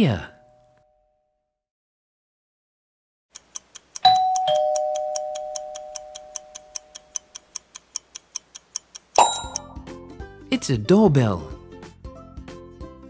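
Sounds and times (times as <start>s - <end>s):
timer ticking: 3.3s - 9.9s
two-note doorbell chime: 4.0s - 6.7s, 9.2s - 9.8s.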